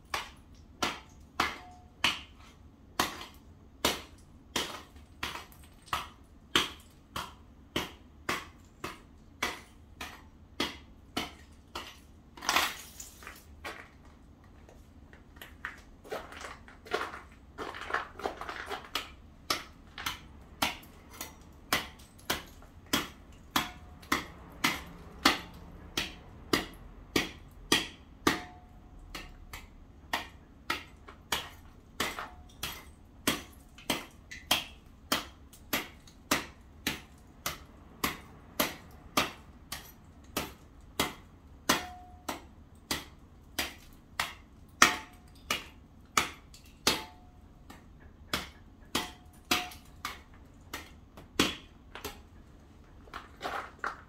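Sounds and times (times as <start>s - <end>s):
hand tool striking ice: 0.1s - 14.2s, 15.4s - 52.4s
scraping on paving: 12.4s - 19.2s, 52.2s - 54.0s.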